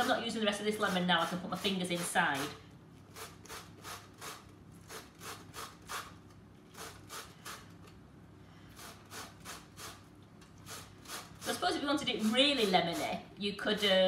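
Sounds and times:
lemon scraping on box grater: 0.0s - 2.5s.

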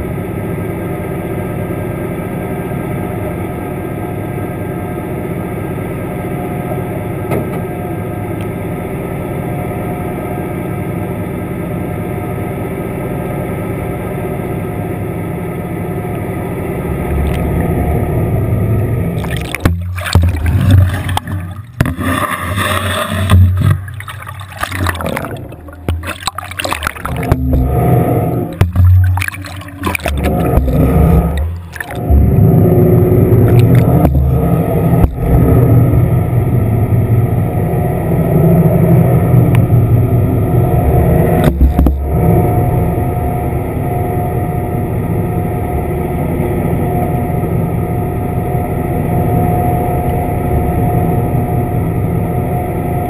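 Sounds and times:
faint constant hum: 0.0s - 53.0s
water sloshing and bubbling: 16.1s - 53.0s
low underwater rumble: 16.6s - 53.0s.

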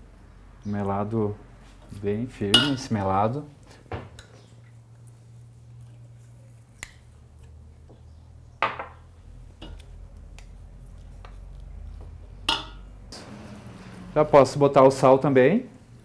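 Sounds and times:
low steady hum: 0.0s - 3.8s
metal clinking on steel bowl: 2.6s - 2.9s.

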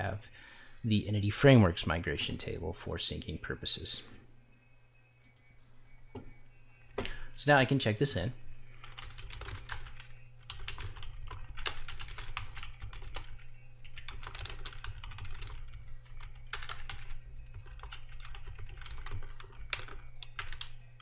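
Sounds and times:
keyboard typing clicks: 8.8s - 20.7s.

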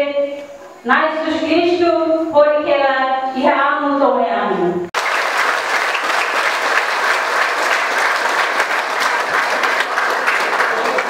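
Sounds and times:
crowd applauding: 5.0s - 11.0s.

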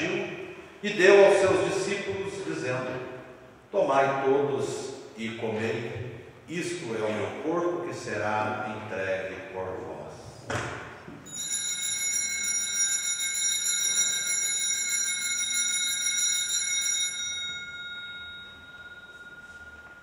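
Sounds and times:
bells ringing: 11.3s - 20.0s.

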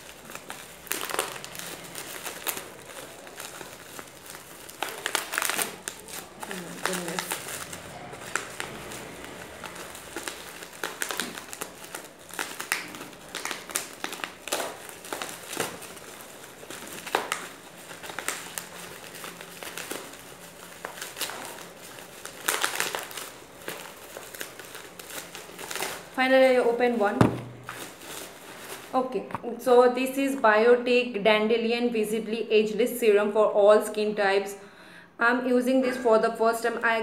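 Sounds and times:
bubble wrap crinkling: 0.0s - 29.4s.

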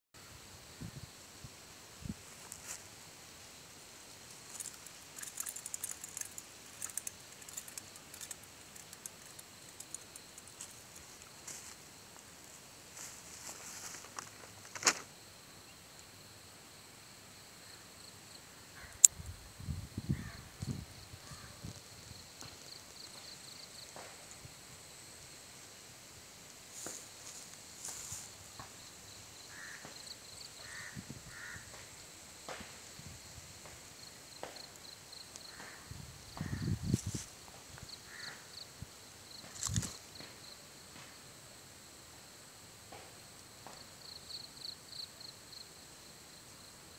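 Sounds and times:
fish flopping on dry grass: 4.3s - 11.8s
crow cawing: 29.5s - 29.8s, 30.6s - 31.7s, 38.1s - 38.4s.

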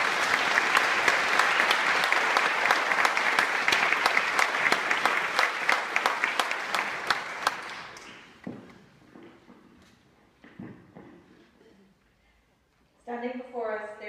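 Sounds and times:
congregation applauding: 0.0s - 8.4s.

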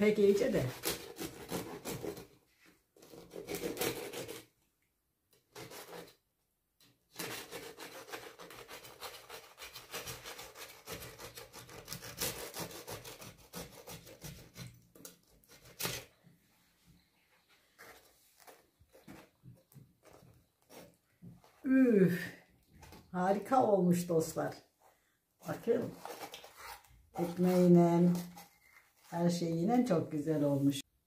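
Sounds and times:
knife rasping bread crust: 0.6s - 2.4s, 3.0s - 4.5s, 5.5s - 6.2s, 7.1s - 16.1s, 20.0s - 21.0s.

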